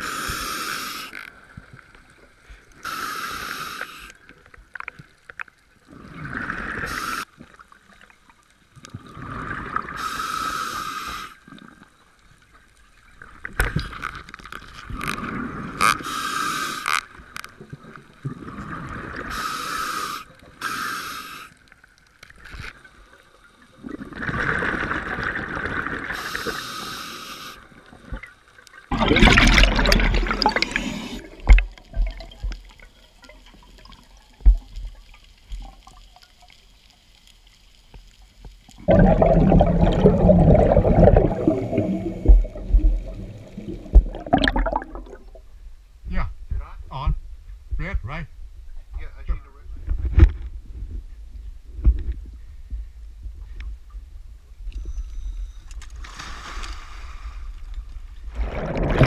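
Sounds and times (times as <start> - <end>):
diver breathing through regulator: 0.0 - 1.2, 19.2 - 21.6, 26.1 - 27.6
exhaled bubbles underwater: 28.9 - 32.8, 38.8 - 45.5, 58.3 - 59.0.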